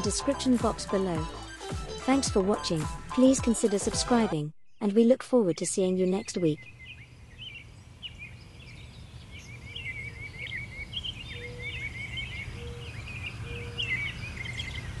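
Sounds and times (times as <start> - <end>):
birds chirping and singing: 5.4 - 15.0.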